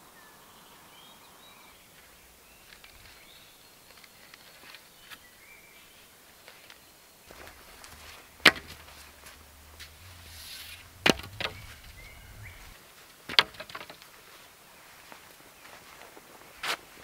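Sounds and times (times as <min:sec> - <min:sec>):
small wooden clacks: 0:07.3 - 0:12.7, 0:13.3 - 0:14.1
wooden poles knocking together: 0:07.3 - 0:12.7, 0:13.3 - 0:14.0.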